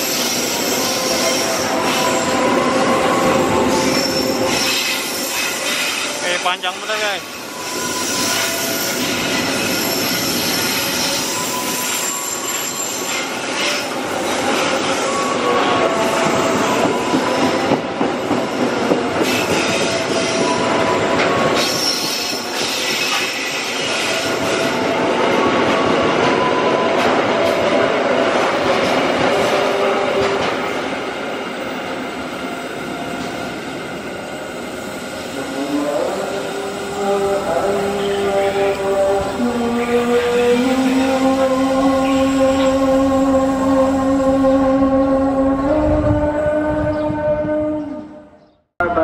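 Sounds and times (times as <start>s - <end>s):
train wheels squealing: 0.0s - 17.7s, 18.4s - 24.8s
train rumble and clatter: 0.0s - 47.6s.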